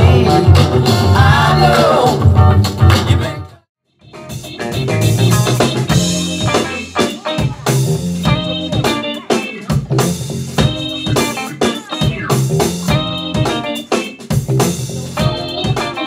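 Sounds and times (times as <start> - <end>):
drum kit with cymbals: 0.0 - 3.5, 4.1 - 16.0
bass guitar: 0.0 - 16.0
keyboard: 0.0 - 16.0
electric guitar: 4.1 - 16.0.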